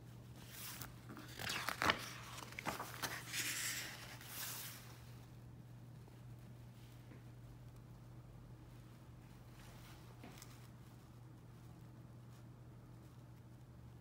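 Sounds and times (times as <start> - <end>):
book page rustling and snapping: 0.4 - 4.6.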